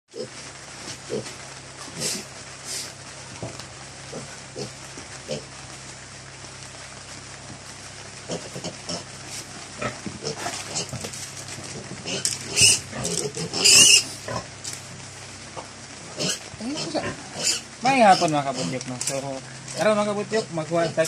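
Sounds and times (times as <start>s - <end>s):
steady low hum: 0.1s - 21.0s
piglets grunting and squealing: 1.9s - 2.4s, 4.1s - 5.6s, 8.2s - 9.2s, 9.8s - 11.1s, 11.7s - 14.5s, 16.1s - 18.8s.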